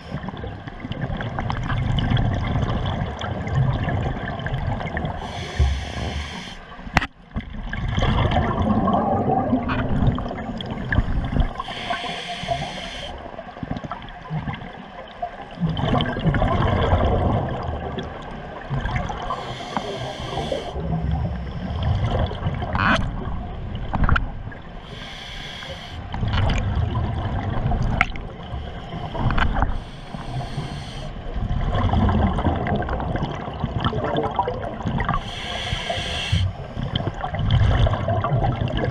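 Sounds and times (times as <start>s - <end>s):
gurgling exhaled bubbles: 0.0s - 6.4s, 7.5s - 25.2s, 25.9s - 38.9s
hissing regulator inhale: 5.2s - 6.7s, 10.9s - 13.3s, 19.3s - 22.1s, 24.8s - 26.2s, 28.6s - 31.2s, 35.2s - 37.1s.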